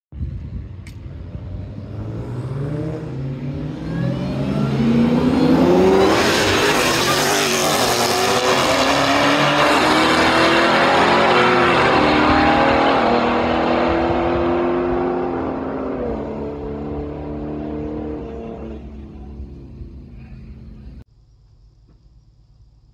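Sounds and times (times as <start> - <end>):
car engines accelerating hard: 1.0 - 21.0.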